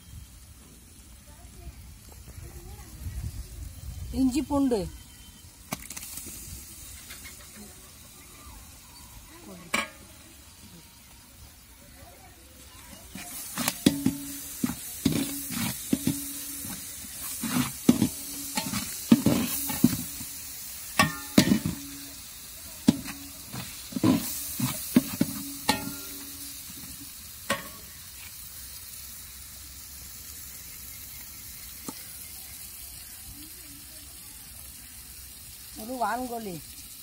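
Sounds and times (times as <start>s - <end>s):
masala sizzling: 0.0s - 37.0s
ladle scraping metal pot: 13.0s - 22.2s, 22.8s - 26.7s.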